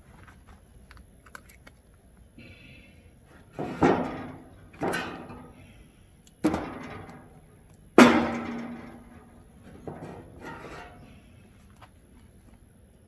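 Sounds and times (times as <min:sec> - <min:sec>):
wood knocking in metal firebox: 0:03.5 - 0:05.6, 0:06.4 - 0:07.4, 0:08.0 - 0:11.1.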